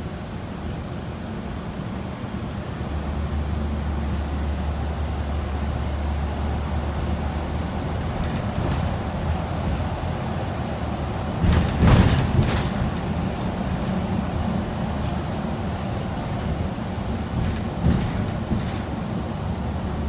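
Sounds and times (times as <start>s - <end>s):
bus engine and tyres rumbling: 0.0s - 20.0s
loud rattling clatter: 7.2s - 9.8s, 11.4s - 14.0s, 16.2s - 19.1s.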